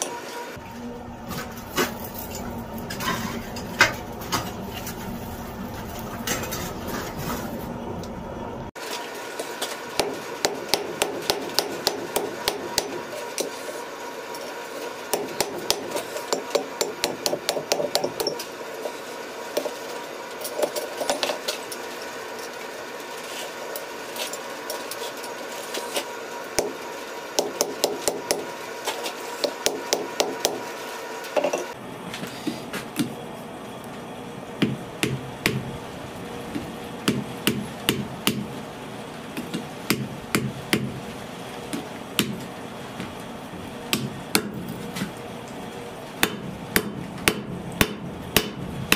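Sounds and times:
steady low hum: 0:00.5 - 0:08.8, 0:22.2 - 0:48.9
hammer striking metal on anvil: 0:15.1 - 0:18.4, 0:46.2 - 0:48.6.

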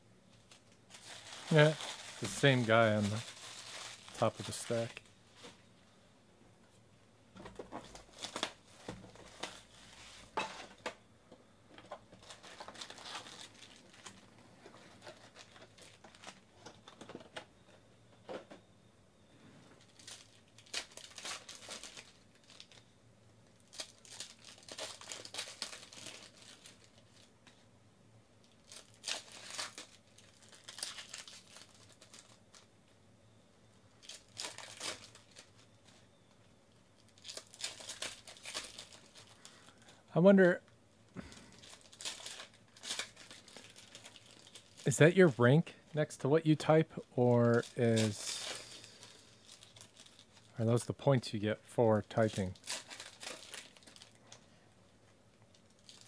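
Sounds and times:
wrappers crinkling: 0:00.3 - 0:05.6, 0:07.8 - 0:10.8, 0:11.9 - 0:17.1, 0:19.8 - 0:27.6, 0:28.4 - 0:33.0, 0:34.0 - 0:36.1, 0:36.8 - 0:40.0, 0:41.2 - 0:45.4, 0:47.3 - 0:50.8, 0:52.0 - 0:54.6, 0:55.5 - 0:56.0
foil packs tearing: 0:00.5 - 0:05.0, 0:07.9 - 0:10.8, 0:12.2 - 0:16.7, 0:19.8 - 0:22.8, 0:23.6 - 0:27.3, 0:28.4 - 0:32.7, 0:34.0 - 0:35.7, 0:37.0 - 0:39.9, 0:41.2 - 0:45.1, 0:47.4 - 0:50.5, 0:52.1 - 0:54.4, 0:55.7 - 0:56.0.

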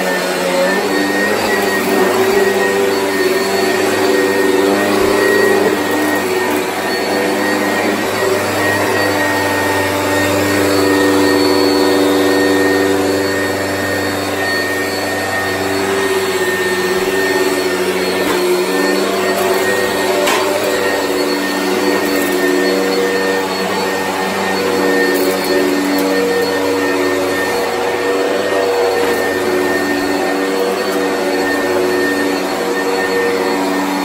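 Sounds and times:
vacuum cleaner running: 0:00.0 - 0:34.0.

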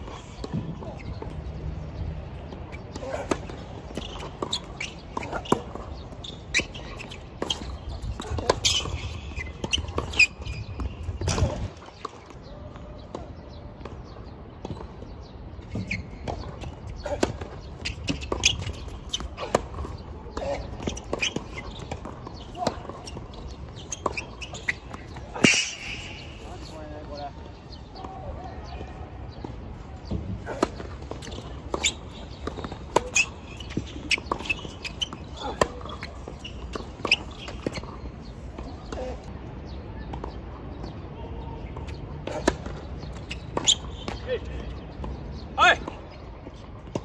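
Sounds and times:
tennis ball bouncing on court: 0:02.5 - 0:26.2, 0:28.8 - 0:39.0.

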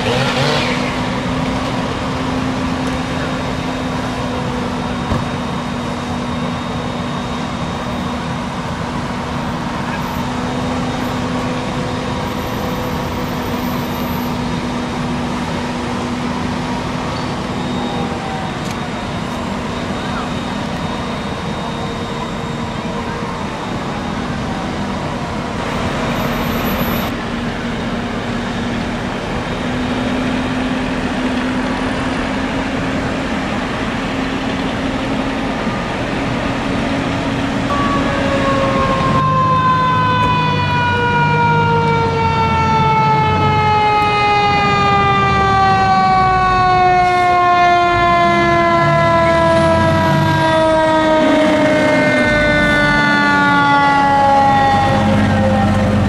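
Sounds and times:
mechanical siren: 0:00.0 - 0:27.9, 0:29.1 - 0:56.0
siren drone: 0:00.0 - 0:56.0
low horn blasts: 0:37.7 - 0:41.5.

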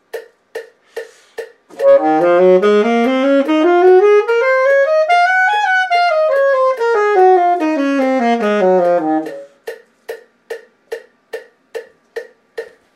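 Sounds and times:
metronome clicking: 0:00.0 - 0:12.9
alto saxophone playing scale: 0:01.7 - 0:09.6.

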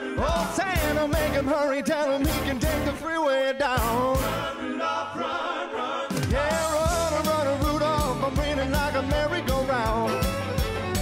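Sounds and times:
steady drum beat: 0:00.0 - 0:01.6, 0:02.2 - 0:03.0, 0:03.8 - 0:04.5, 0:06.1 - 0:11.0
live band playing: 0:00.0 - 0:03.1, 0:06.1 - 0:11.0
man singing: 0:00.2 - 0:04.5, 0:06.3 - 0:10.5.

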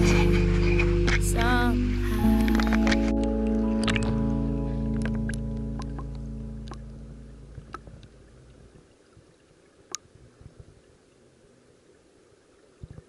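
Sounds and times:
low rumble: 0:00.0 - 0:08.9
muffled underwater stream: 0:00.0 - 0:13.0.

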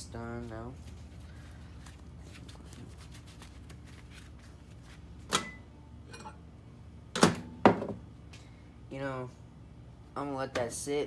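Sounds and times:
gloved hands rustling: 0:00.4 - 0:05.3.

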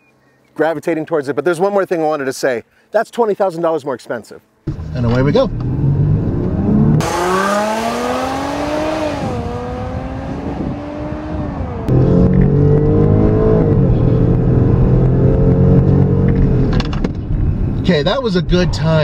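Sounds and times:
car engine accelerating hard: 0:04.8 - 0:16.8.

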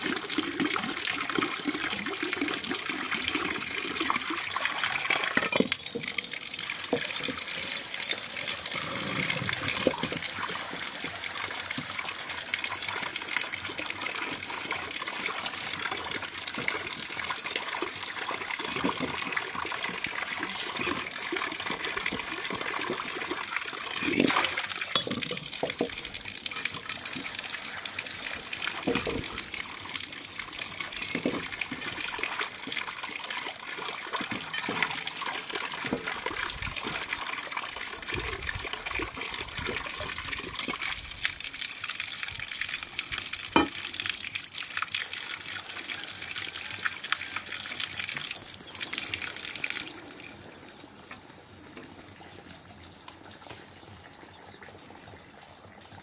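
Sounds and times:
tap water running into wok: 0:00.0 - 0:41.4, 0:42.4 - 0:44.9.

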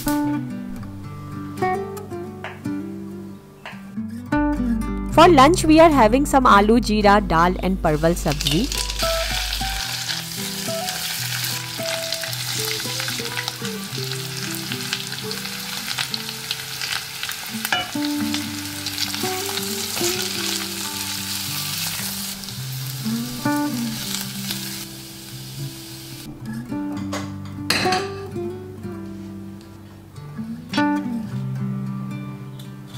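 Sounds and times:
potatoes sizzling in oil: 0:08.2 - 0:26.3.

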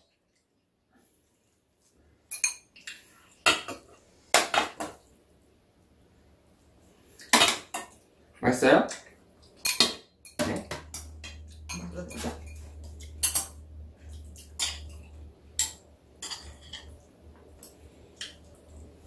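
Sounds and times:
low steady hum: 0:00.0 - 0:19.0
metal chopsticks clinking on bowls: 0:09.6 - 0:17.0, 0:18.2 - 0:18.5.

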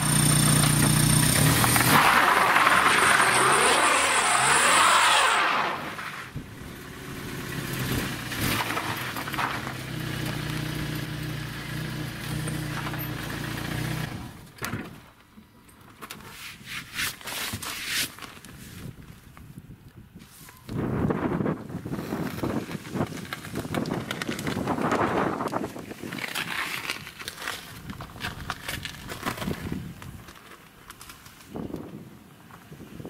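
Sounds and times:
car engine revving: 0:00.0 - 0:14.4.

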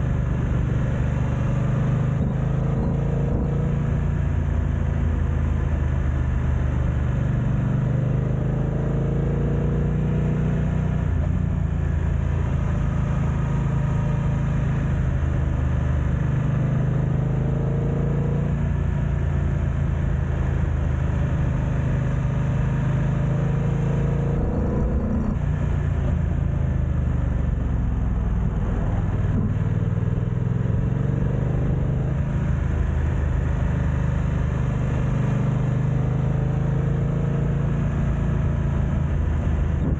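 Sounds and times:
motorcycle engine revving: 0:01.2 - 0:04.6, 0:21.5 - 0:39.9.

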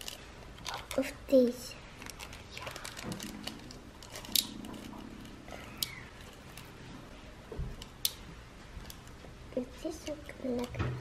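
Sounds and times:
plastic bag crinkling: 0:01.9 - 0:06.8.

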